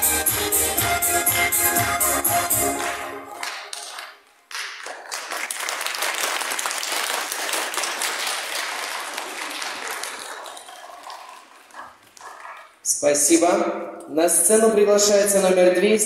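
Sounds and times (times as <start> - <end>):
audience applauding: 2.5 - 12.8.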